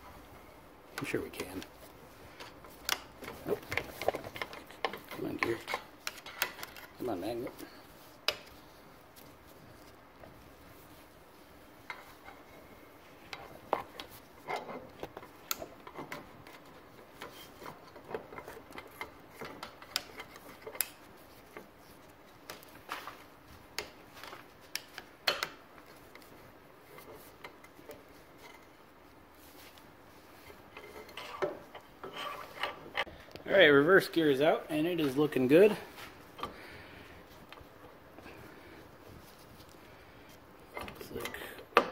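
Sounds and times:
metal clicks and scrapes: 0:02.4 - 0:07.6, 0:13.3 - 0:21.7, 0:29.7 - 0:33.1.

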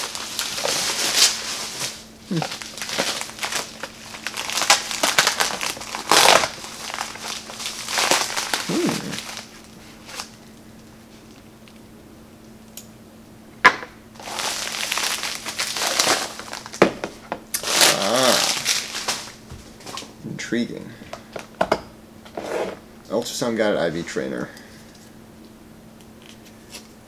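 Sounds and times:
plastic bag crinkling: 0:00.0 - 0:10.4, 0:14.2 - 0:16.9, 0:17.6 - 0:19.4.

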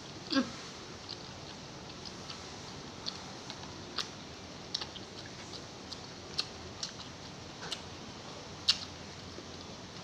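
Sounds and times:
mouth chewing clicks and smacks: 0:01.0 - 0:07.9, 0:08.6 - 0:09.0.

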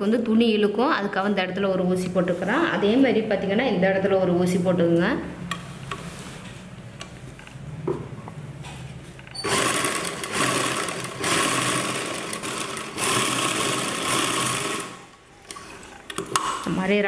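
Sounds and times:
sewing machine stitching: 0:09.4 - 0:16.6.

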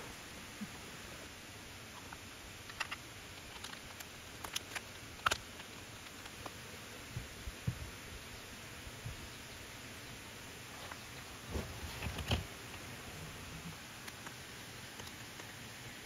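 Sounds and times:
steady low hiss: 0:00.0 - 0:16.0.

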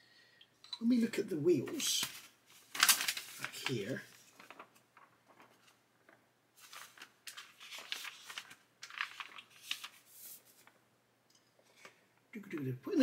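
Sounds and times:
paper rustling: 0:01.6 - 0:10.8.

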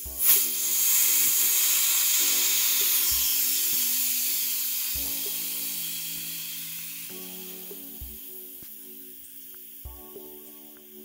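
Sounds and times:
compressed air hissing: 0:00.0 - 0:11.0.

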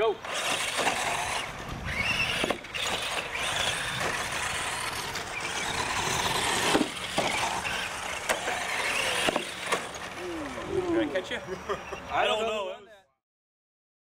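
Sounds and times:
tyres on dirt: 0:00.0 - 0:12.5
toy truck motors whining: 0:00.1 - 0:12.6.

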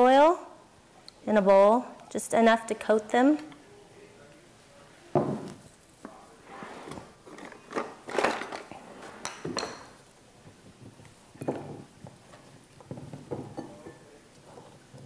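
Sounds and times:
ceramic cruet knocking on wood: 0:05.2 - 0:05.5.

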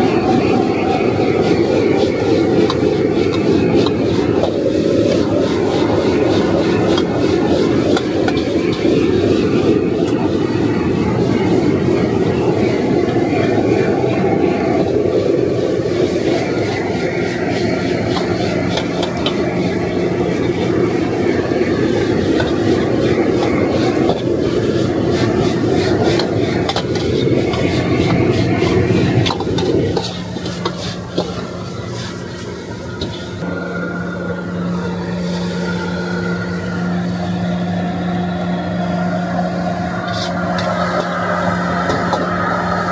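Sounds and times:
gas burner roaring: 0:00.0 - 0:42.9
metal utensils scraping a wok: 0:01.1 - 0:10.6, 0:15.7 - 0:33.4, 0:39.6 - 0:42.9.

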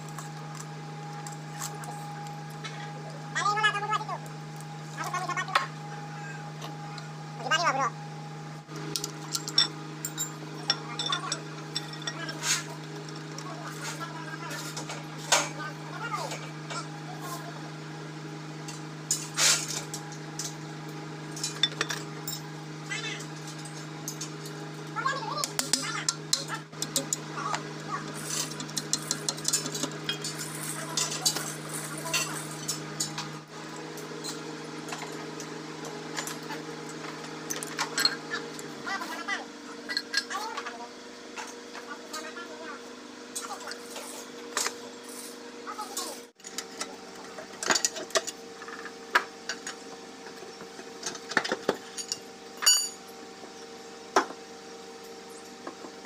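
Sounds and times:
steady low hum: 0:00.0 - 0:56.0
metallic clinks and scraping: 0:09.0 - 0:15.5, 0:28.1 - 0:33.2, 0:51.8 - 0:53.0.

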